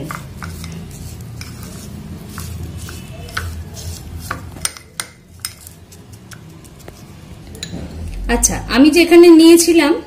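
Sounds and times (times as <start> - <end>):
spoon stirring nuts in bowl: 0.0 - 7.4.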